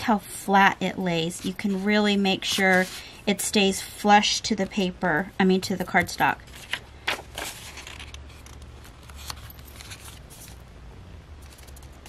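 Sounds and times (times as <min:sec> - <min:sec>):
low steady hum: 0:00.0 - 0:12.0
book page rustling: 0:01.4 - 0:03.1, 0:05.9 - 0:10.6, 0:11.4 - 0:12.0.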